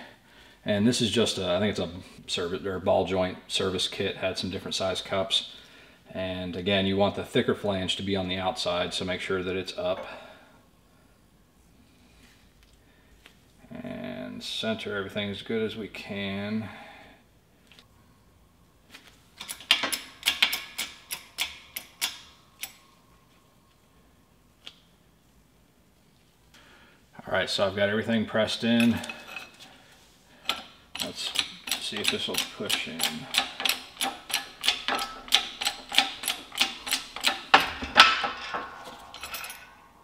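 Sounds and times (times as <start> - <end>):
metal parts clicking and knocking: 19.4 - 22.8, 30.5 - 39.8.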